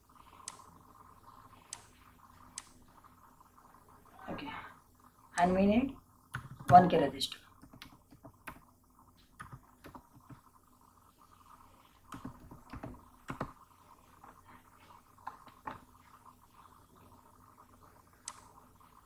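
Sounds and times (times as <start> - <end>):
computer keyboard keystrokes: 6.3 - 6.8.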